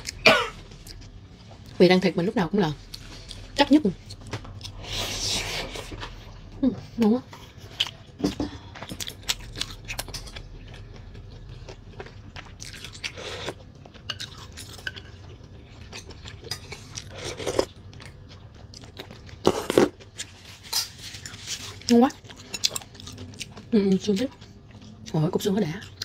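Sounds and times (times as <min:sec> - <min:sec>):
chewing and biting: 0:07.6 - 0:20.4.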